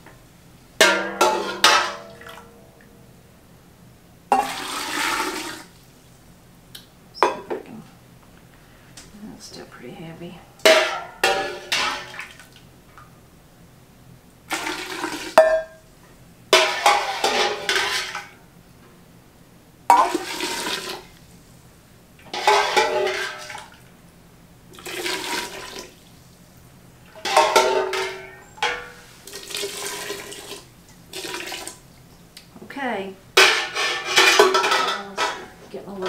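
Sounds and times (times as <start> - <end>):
metal pan clinking on pot: 0.8 - 2.2, 10.6 - 12.2, 27.2 - 28.9, 33.4 - 35.6
hot water splashing into jars: 4.3 - 5.8, 14.5 - 15.6, 19.9 - 21.1, 22.2 - 23.8, 24.7 - 26.0, 27.1 - 31.8.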